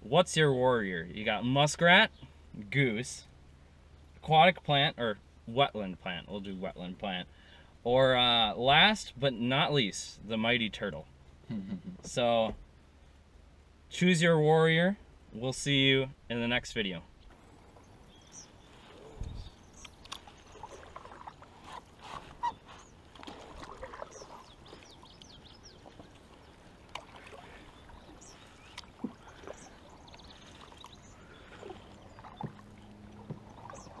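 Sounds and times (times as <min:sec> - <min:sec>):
canoe paddles dipping in water: 0:17.1 - 0:34.0
small splashes: 0:17.3 - 0:34.0
paddle knocks: 0:26.9 - 0:29.8, 0:31.5 - 0:34.0.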